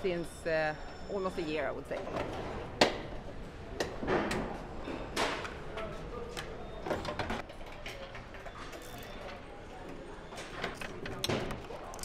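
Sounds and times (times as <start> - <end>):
clicks and clanks of tools: 10.4 - 12.0.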